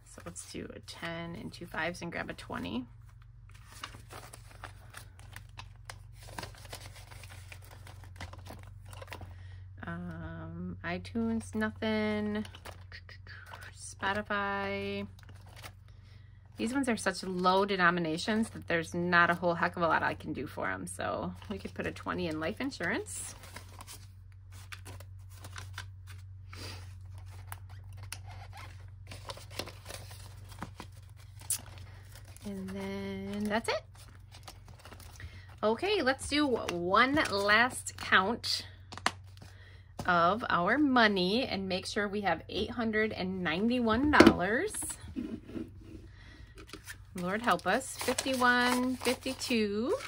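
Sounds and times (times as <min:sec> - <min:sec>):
low steady hum: 0:00.0 - 0:50.0
banknotes rustling and flicking: 0:02.4 - 0:09.4, 0:21.3 - 0:40.1, 0:44.8 - 0:50.0
plastic sleeve crinkling: 0:03.0 - 0:09.2, 0:22.9 - 0:35.6, 0:46.6 - 0:50.0.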